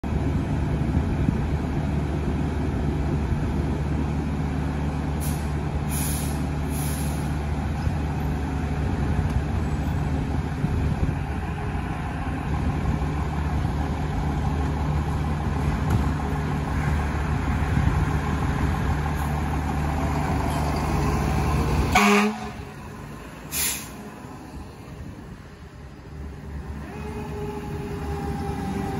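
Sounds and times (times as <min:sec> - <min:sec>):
fire truck engine droning: 0:00.0 - 0:28.9
short air hisses: 0:05.2 - 0:07.4, 0:23.5 - 0:24.0.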